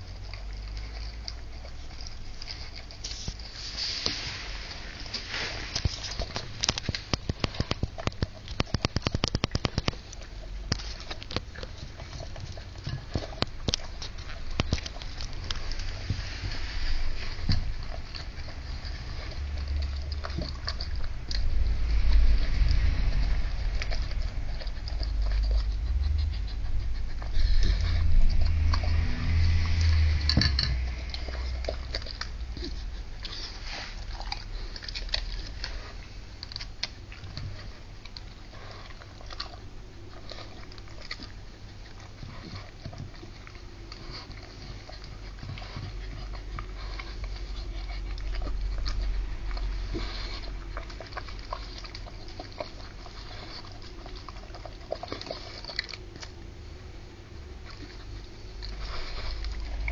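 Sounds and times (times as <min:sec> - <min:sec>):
dog chewing from metal bowl: 0:00.0 - 0:59.9
low rumble: 0:00.0 - 0:59.9.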